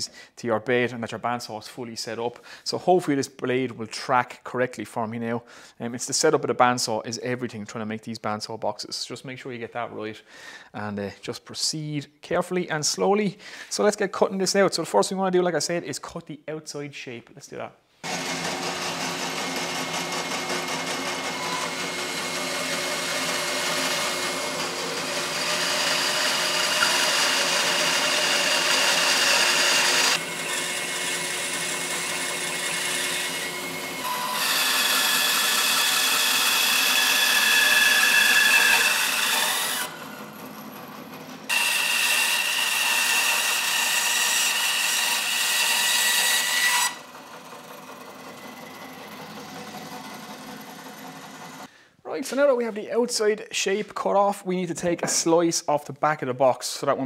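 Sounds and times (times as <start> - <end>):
bandsaw cutting wood: 18.0 - 51.7.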